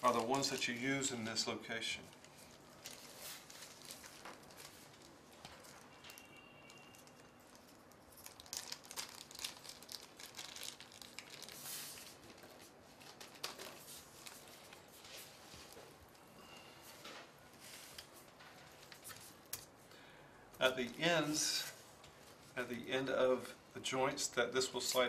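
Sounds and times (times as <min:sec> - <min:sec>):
plastic bag crinkling: 0:00.0 - 0:16.6.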